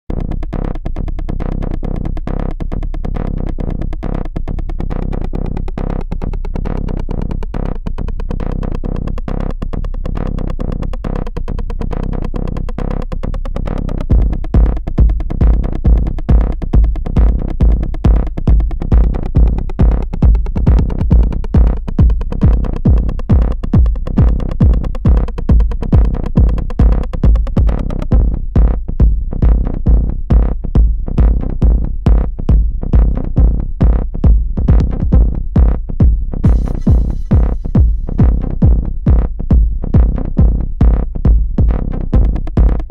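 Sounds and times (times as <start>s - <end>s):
heavy bass kick: 0.1s - 42.9s
electronic dance music: 18.4s - 27.9s, 33.0s - 42.9s.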